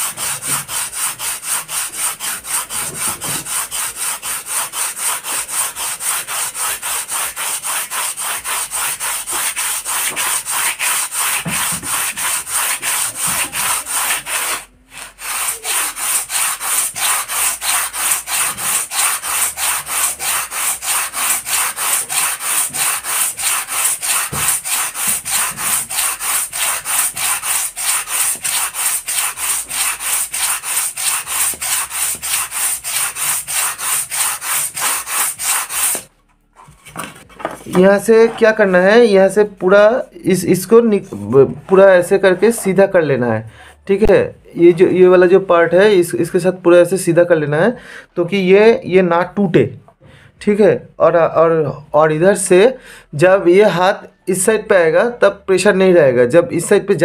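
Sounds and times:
sandpaper rasping on foam: 0.0 - 36.1.

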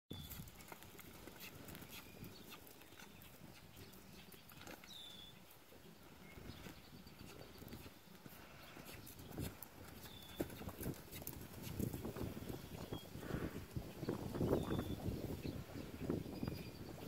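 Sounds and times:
horse hoofbeats on sand: 6.5 - 15.4.

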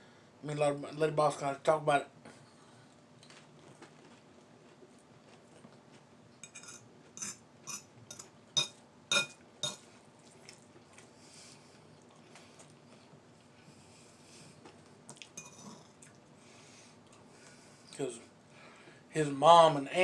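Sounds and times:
metal fork clinking on a bowl: 6.4 - 9.8, 15.4 - 15.7.

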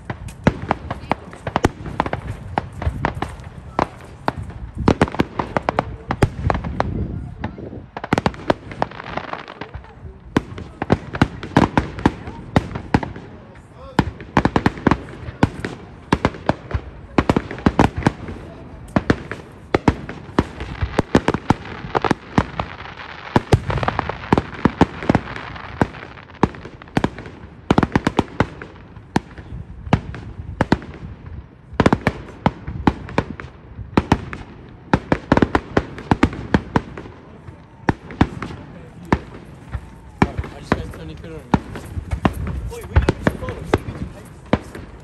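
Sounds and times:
fireworks bangs and pops: 0.0 - 45.0
crackling hiss: 7.9 - 45.0.

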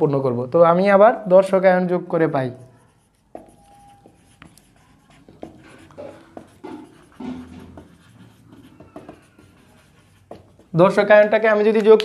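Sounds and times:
marker squeaks: 2.5 - 10.8
marker scratching on whiteboard: 2.5 - 11.4.

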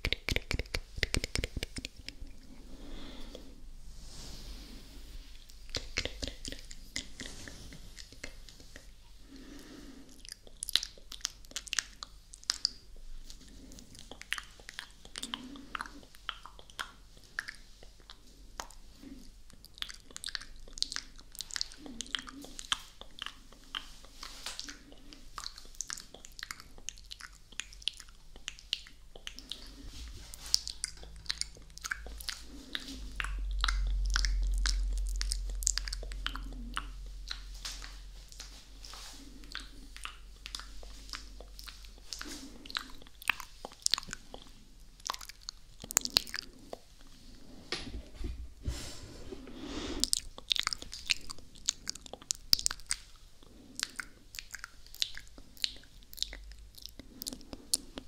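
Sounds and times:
wet mouth clicks and smacks: 0.0 - 2.5, 5.5 - 9.0, 10.2 - 18.9, 19.5 - 47.1, 50.0 - 58.0
low rumble: 29.8 - 43.1.

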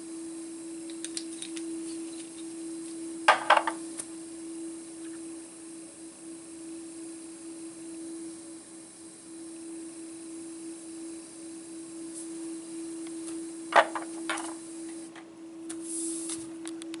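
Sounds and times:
steady hum: 0.0 - 17.0
faint hiss: 15.7 - 16.5.

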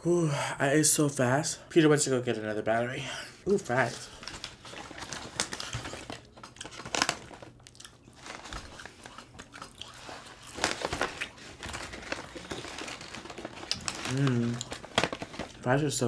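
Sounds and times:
paper bag crackling: 3.5 - 16.0
chewing french fries: 4.0 - 15.7.

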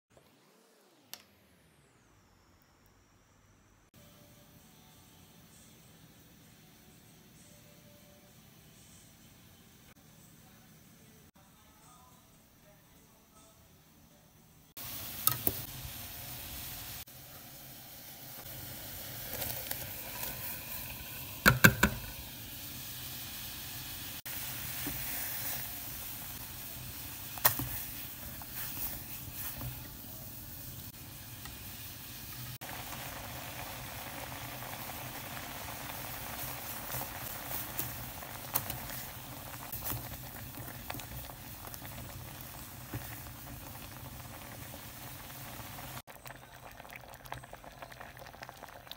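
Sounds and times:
water boiling in pot: 14.8 - 48.9
spoon knocking against pot: 21.4 - 22.0.

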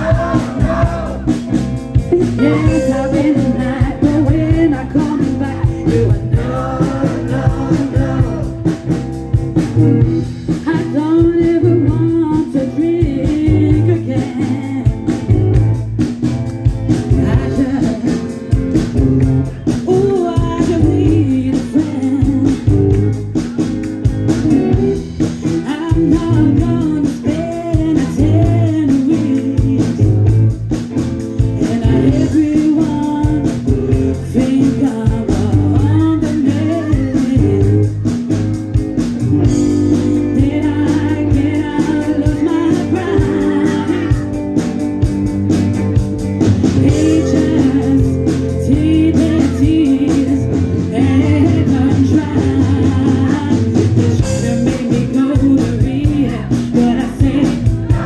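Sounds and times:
lead vocal singing: 0.0 - 9.1, 17.0 - 18.7, 25.4 - 30.3, 31.4 - 38.3, 39.4 - 44.6, 46.5 - 58.0
live rock band playing: 0.0 - 58.0.

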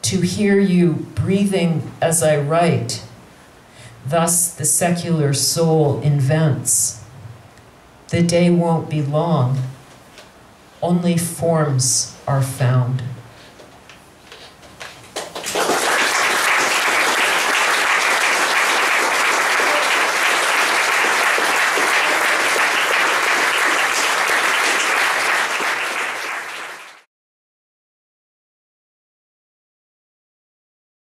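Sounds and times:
audience applauding: 15.0 - 27.1.

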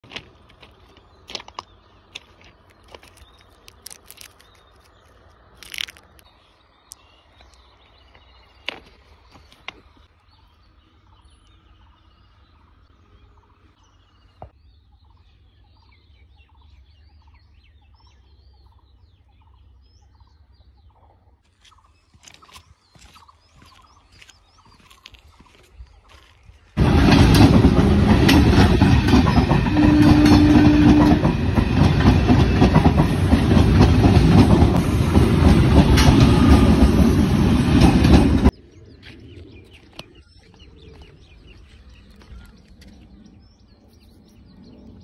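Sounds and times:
birds chirping: 0.0 - 45.0
plastic wrappers crinkling: 2.7 - 6.2
wrapper ripping: 2.9 - 6.2.

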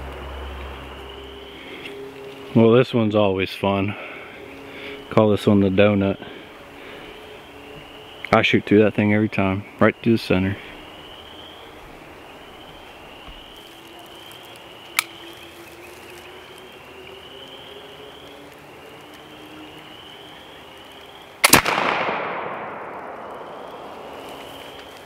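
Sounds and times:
rifle shot: 21.4 - 24.1.

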